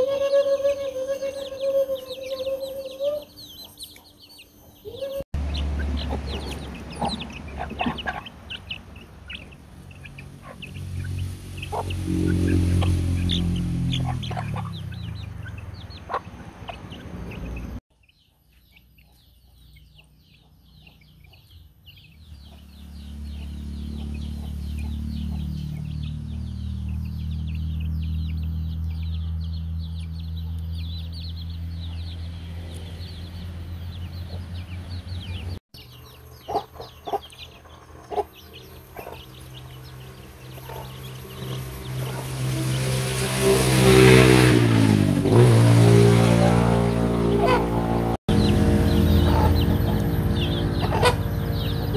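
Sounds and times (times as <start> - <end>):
chicks peeping and clucking: 0.0 - 43.2, 43.8 - 51.9
low droning hum: 46.8 - 51.9.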